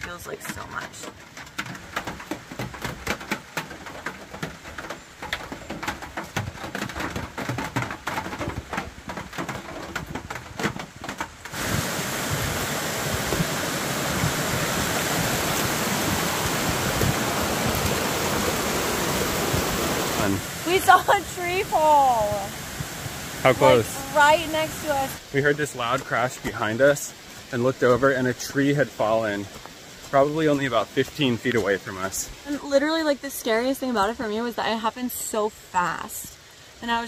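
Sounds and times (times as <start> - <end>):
rain dripping and pattering: 0.0 - 37.0
rain rushing hiss: 11.1 - 37.0.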